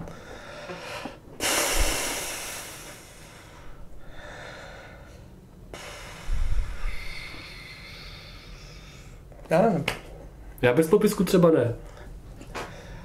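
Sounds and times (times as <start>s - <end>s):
person exhaling sharply: 0.7s - 4.9s.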